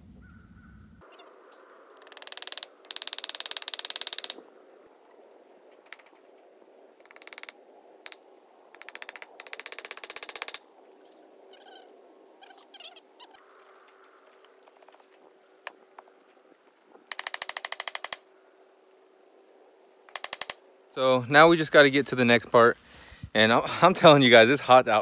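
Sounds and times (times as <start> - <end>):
ratchet clicking rapidly: 2.1 - 4.4, 7.0 - 7.5, 17.1 - 18.2, 20.1 - 20.6.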